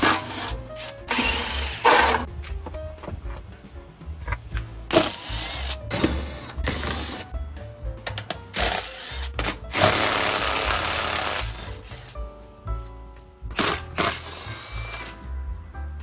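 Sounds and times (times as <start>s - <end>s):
background music: 0.0s - 16.0s
power tool running: 13.6s - 15.2s.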